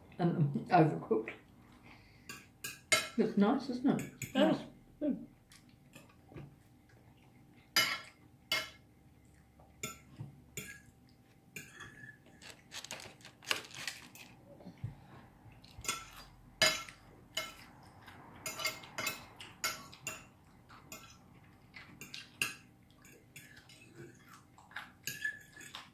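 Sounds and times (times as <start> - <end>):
cutlery clinking on plates: 7.8 - 8.8, 9.8 - 10.9, 15.8 - 17.7, 18.4 - 20.3, 25.0 - 25.9.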